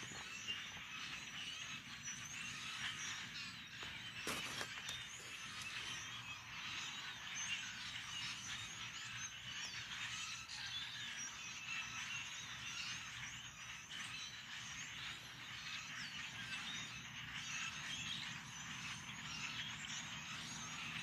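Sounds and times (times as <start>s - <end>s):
flock of blackbirds chattering: 0.0s - 21.0s.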